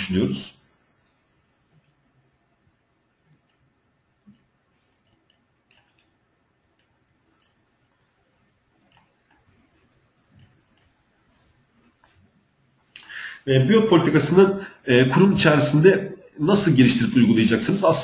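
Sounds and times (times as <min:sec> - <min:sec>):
faint clicks: 0:03.2 - 0:07.7, 0:08.7 - 0:09.6, 0:10.2 - 0:11.0.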